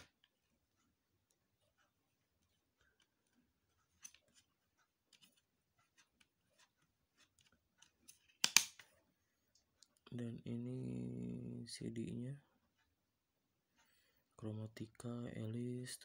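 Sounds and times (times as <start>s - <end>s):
sharp plastic click: 8.4s - 8.9s.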